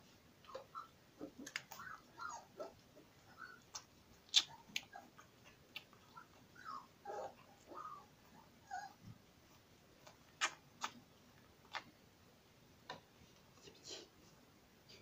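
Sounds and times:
puppy squeaking: 0:01.7 - 0:03.7, 0:06.1 - 0:09.0.

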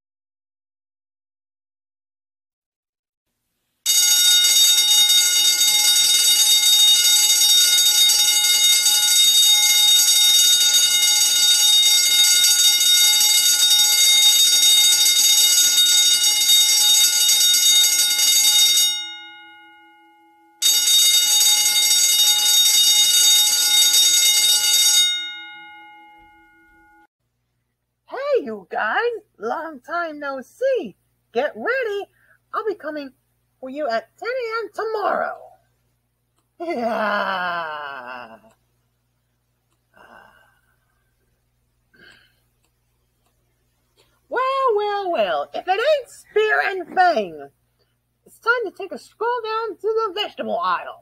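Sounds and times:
fire alarm bell ringing: 0:03.9 - 0:27.1.

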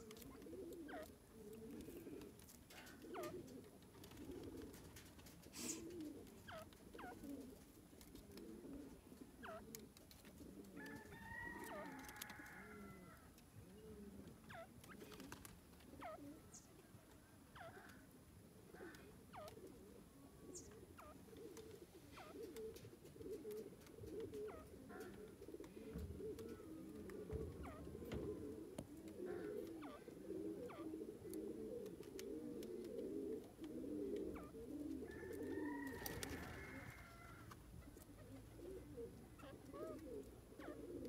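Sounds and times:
small birds chirping: 0:00.0 - 0:03.5, 0:05.5 - 0:07.3, 0:09.2 - 0:10.1, 0:15.8 - 0:18.0, 0:18.7 - 0:19.8, 0:20.4 - 0:28.2, 0:28.8 - 0:31.4, 0:34.2 - 0:34.7, 0:37.8 - 0:40.9
francolin low clucking calls: 0:23.6 - 0:31.4.

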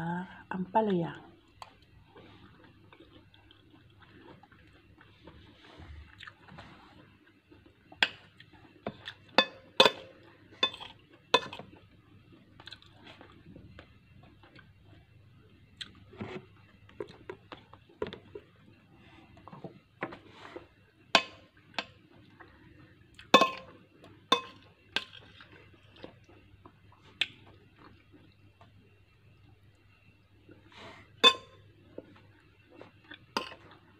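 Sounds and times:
soft chewing: 0:01.4 - 0:09.4, 0:10.0 - 0:21.0, 0:21.6 - 0:33.9
metal spoon clinking on glass bowl: 0:24.3 - 0:25.1, 0:31.2 - 0:31.6.

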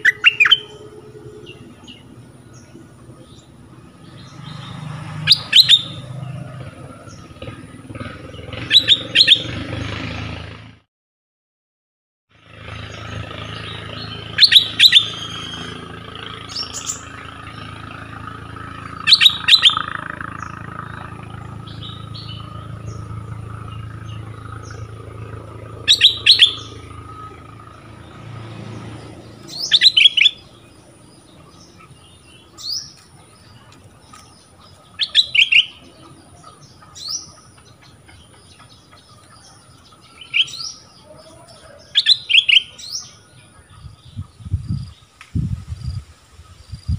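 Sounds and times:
low steady hum: 0:00.0 - 0:04.0
bulbul singing: 0:00.0 - 0:09.8, 0:12.7 - 0:46.9
rising whistles: 0:05.2 - 0:06.2, 0:08.7 - 0:09.6, 0:13.7 - 0:17.1, 0:24.4 - 0:28.2.

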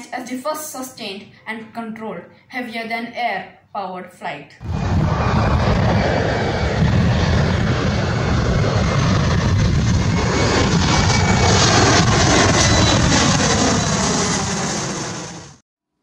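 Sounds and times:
airplane engine rumble: 0:04.6 - 0:15.6.

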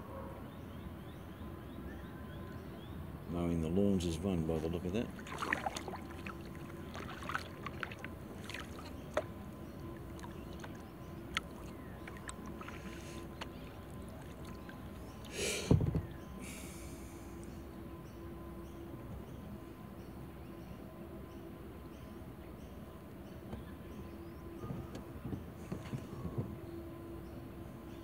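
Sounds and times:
paddle splashing water: 0:04.1 - 0:17.0.

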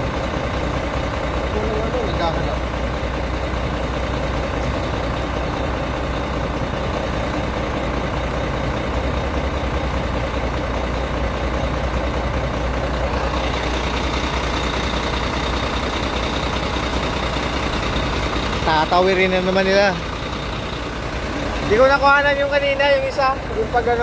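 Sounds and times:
excavator diesel engine idling: 0:00.0 - 0:24.0.

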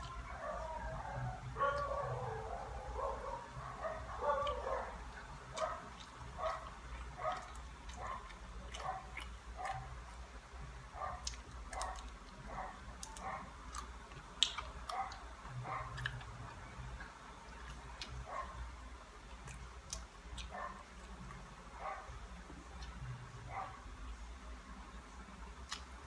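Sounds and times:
faint dog barking: 0:00.2 - 0:10.0, 0:10.9 - 0:13.6, 0:14.8 - 0:16.2, 0:18.2 - 0:18.7, 0:20.4 - 0:21.0, 0:21.7 - 0:22.2, 0:23.4 - 0:23.9
soft eating clicks: 0:04.2 - 0:10.4, 0:11.0 - 0:18.6, 0:19.2 - 0:21.6, 0:22.4 - 0:23.2, 0:25.0 - 0:26.0.

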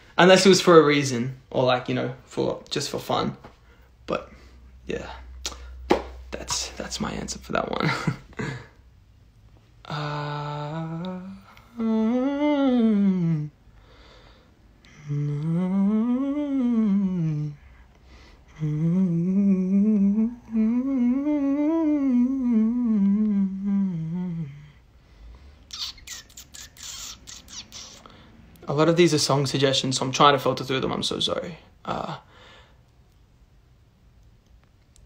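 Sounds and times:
man humming a tune: 0:09.8 - 0:13.6, 0:14.8 - 0:17.8, 0:18.5 - 0:24.8, 0:25.7 - 0:28.1, 0:31.8 - 0:32.3.

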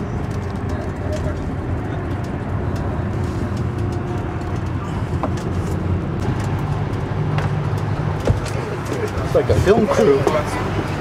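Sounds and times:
bus road and engine rumble: 0:00.0 - 0:11.0.

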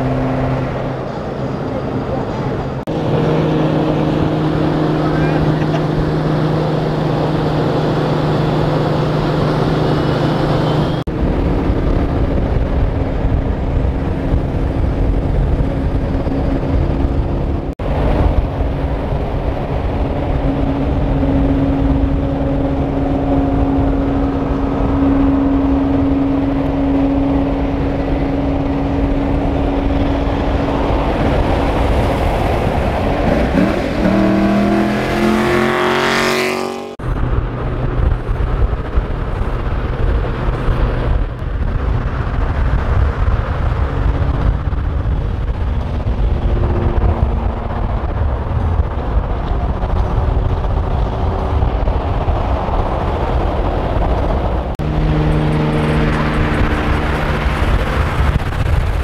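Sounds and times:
engine drone inside moving car: 0:00.0 - 0:09.1, 0:09.7 - 0:59.0
engine revving up: 0:00.0 - 0:11.1, 0:19.9 - 0:37.0, 0:54.6 - 0:59.0
road noise: 0:00.0 - 0:59.0.

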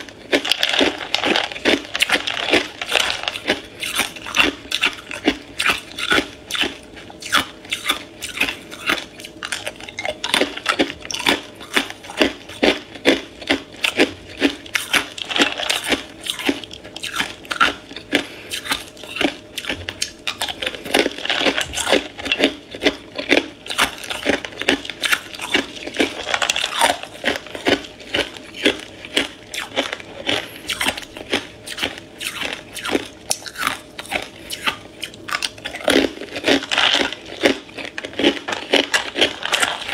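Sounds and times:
ice cubes crunching: 0:00.0 - 0:39.9.

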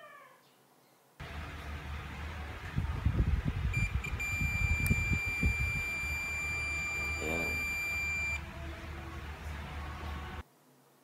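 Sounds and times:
multimeter continuity buzzer beeping: 0:03.7 - 0:08.4.

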